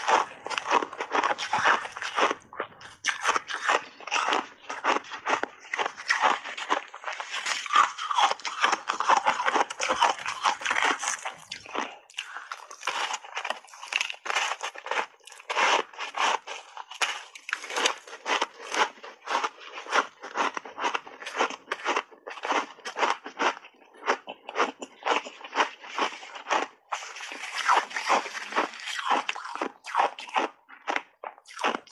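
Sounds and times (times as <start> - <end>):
ice being bitten and chewed: 0.0 - 31.9.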